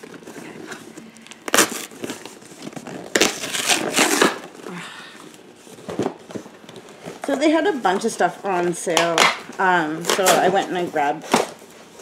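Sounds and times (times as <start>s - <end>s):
plastic packaging crinkling: 0.0s - 8.0s.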